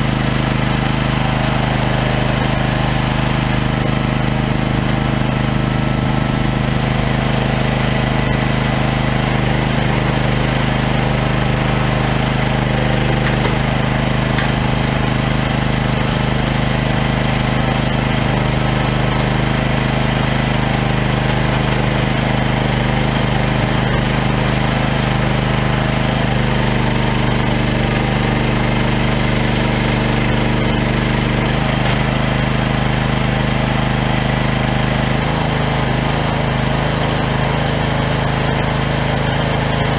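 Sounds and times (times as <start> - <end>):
firewood processor droning: 0.0 - 39.9.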